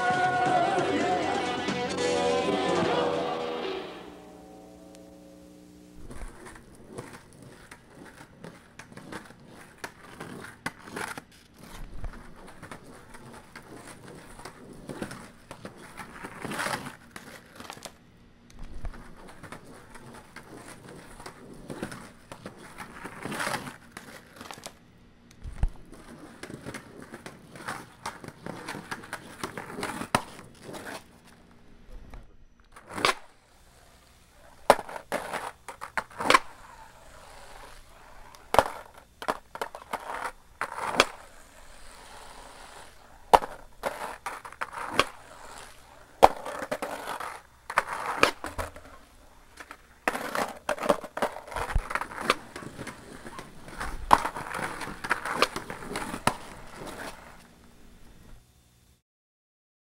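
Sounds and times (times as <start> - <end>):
skateboard wheels rolling on concrete: 0.0 - 58.5
skateboard clacking on surface: 34.4 - 57.4.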